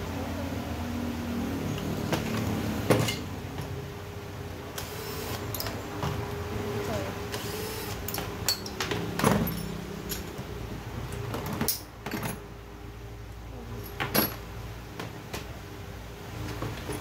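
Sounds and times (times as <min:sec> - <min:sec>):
metal parts clinking: 0:08.1 - 0:10.3.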